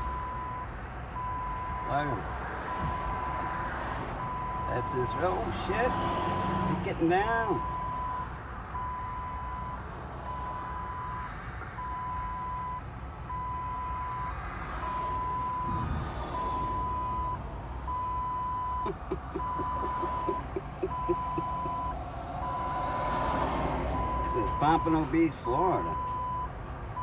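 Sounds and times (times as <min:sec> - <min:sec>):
reversing alarm beeping: 0:00.0 - 0:01.9, 0:04.2 - 0:04.9, 0:07.6 - 0:11.2, 0:11.8 - 0:22.9, 0:24.0 - 0:24.9, 0:25.8 - 0:27.0
low engine rumble: 0:11.8 - 0:22.8.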